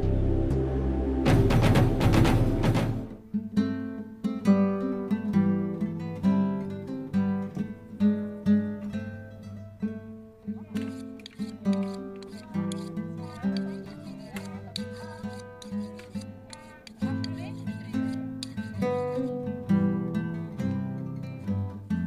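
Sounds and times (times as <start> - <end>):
loud intro sting: 0.0 - 3.2
acoustic guitar picking: 1.3 - 22.0.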